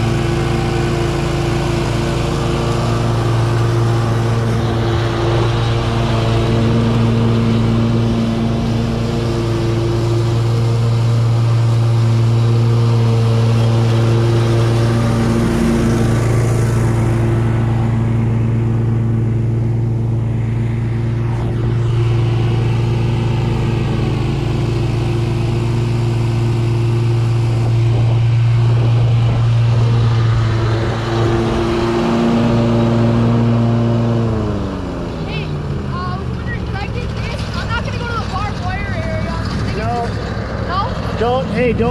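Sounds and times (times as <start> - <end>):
riding mower engine running: 0.0 - 41.9.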